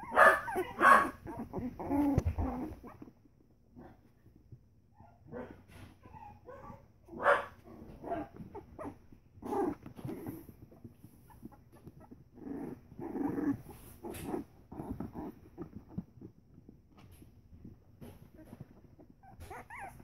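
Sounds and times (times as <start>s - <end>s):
puppies yipping and squealing: 0.0s - 3.2s, 6.0s - 6.9s, 8.2s - 10.4s, 11.2s - 12.4s, 18.2s - 20.0s.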